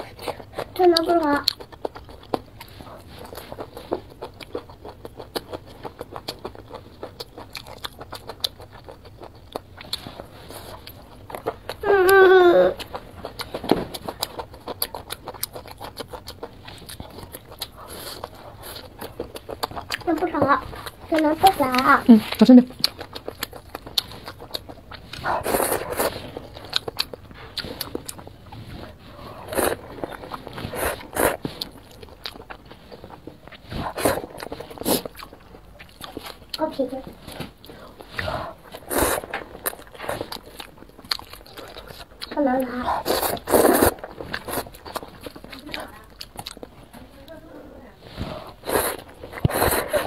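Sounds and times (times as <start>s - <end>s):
person chewing food: 0.0s - 47.3s, 48.0s - 50.0s
slurping noodles: 25.1s - 26.3s, 28.6s - 31.7s, 38.0s - 40.4s, 42.8s - 45.1s, 48.1s - 50.0s.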